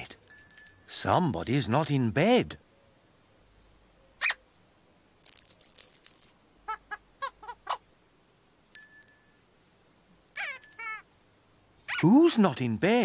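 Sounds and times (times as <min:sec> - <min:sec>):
high shaken rattle: 0:05.2 - 0:06.4, 0:10.4 - 0:11.0.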